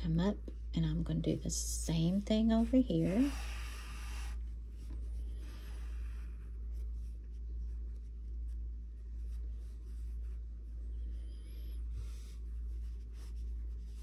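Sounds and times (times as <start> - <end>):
steady low hum: 0.0 - 14.0
yarn rubbing through stitches: 0.9 - 10.9.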